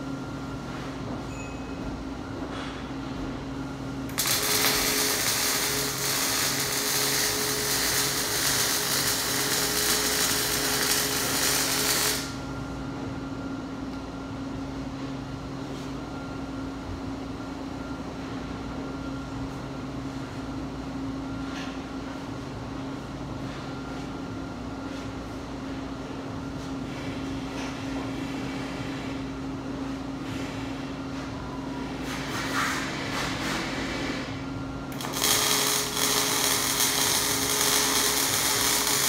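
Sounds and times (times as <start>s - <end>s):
steady low hum: 0.0s - 32.2s, 34.2s - 39.0s
welding arc crackling hiss: 4.1s - 12.4s, 34.9s - 39.0s.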